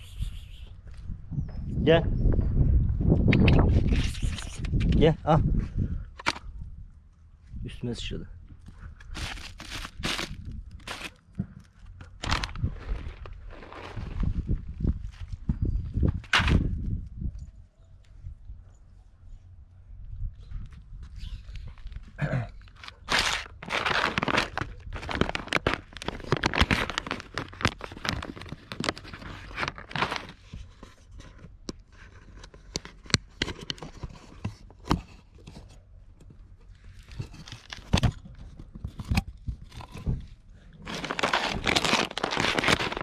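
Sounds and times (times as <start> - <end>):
plastic food packet crinkling: 9.1 - 11.2, 12.0 - 14.2, 22.6 - 30.5, 40.8 - 43.0.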